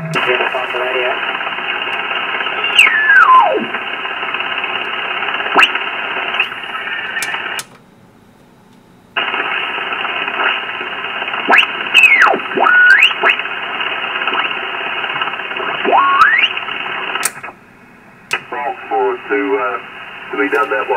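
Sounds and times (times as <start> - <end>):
radio band noise hiss: 0.0 - 7.6, 9.2 - 17.6, 18.3 - 20.9
radio whistles sweeping in pitch: 2.6 - 3.7, 11.5 - 13.4, 15.8 - 16.6.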